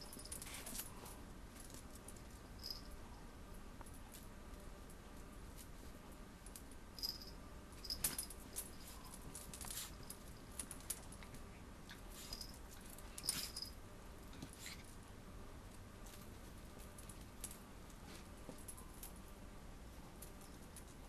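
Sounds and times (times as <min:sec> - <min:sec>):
small metallic jingles: 0:01.6 - 0:03.0, 0:06.5 - 0:11.4, 0:12.1 - 0:13.8.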